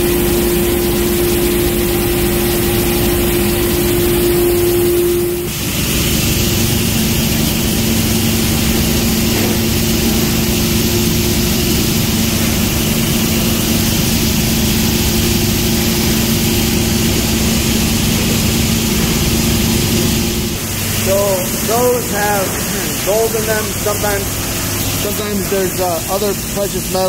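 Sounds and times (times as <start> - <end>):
processing machinery droning: 0.0 - 27.0.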